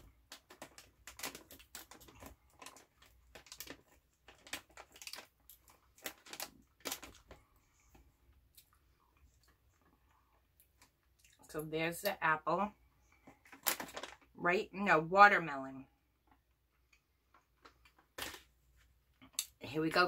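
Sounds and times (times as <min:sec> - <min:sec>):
plastic candy package crinkling: 0:00.0 - 0:11.0, 0:13.2 - 0:14.4, 0:17.2 - 0:18.6.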